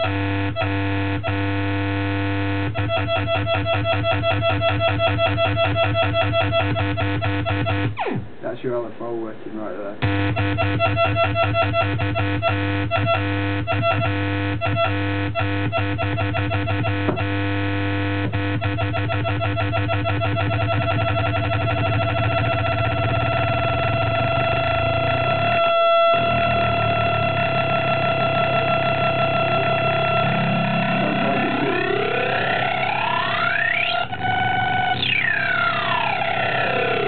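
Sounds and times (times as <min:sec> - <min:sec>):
pulsing square-wave synth drone: 0:00.0 - 0:08.2, 0:10.0 - 0:37.0.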